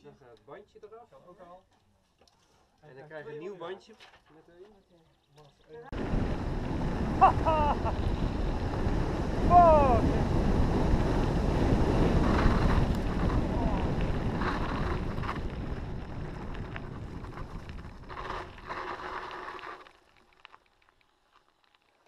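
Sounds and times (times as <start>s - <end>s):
wind buffeting microphone: 5.9s - 18.7s
bike tyres rumbling on dirt: 5.9s - 22.0s.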